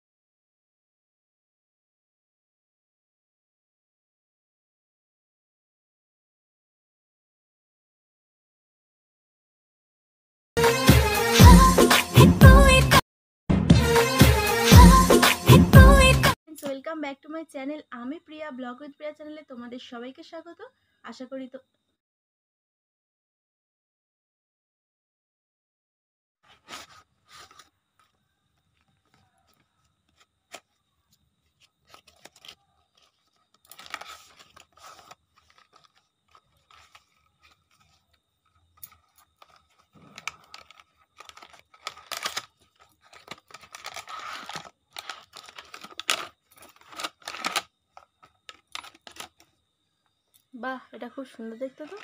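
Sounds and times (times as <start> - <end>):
plastic packaging crinkling: 26.4 - 49.6, 51.6 - 52.0.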